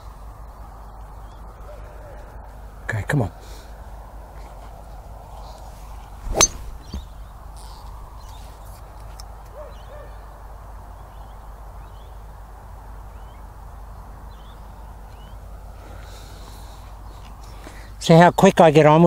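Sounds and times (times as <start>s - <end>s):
low outdoor background: 0.0s - 19.0s
golf club striking ball: 6.2s - 7.3s.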